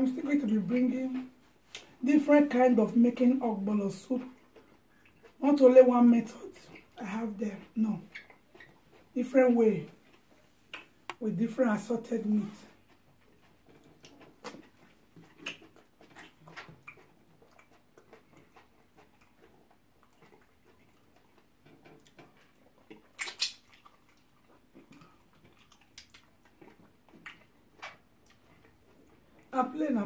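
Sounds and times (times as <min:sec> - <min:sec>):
chewing and lip smacks: 0:04.2 - 0:05.4, 0:07.6 - 0:09.2, 0:09.9 - 0:11.2, 0:12.5 - 0:29.5.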